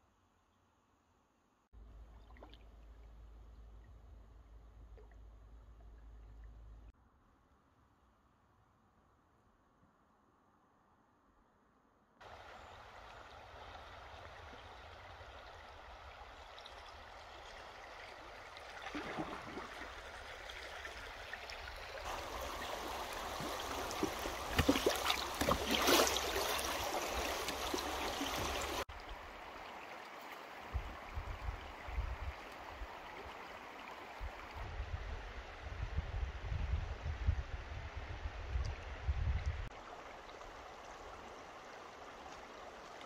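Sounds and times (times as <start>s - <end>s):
river water rushing: 22.0s - 30.7s.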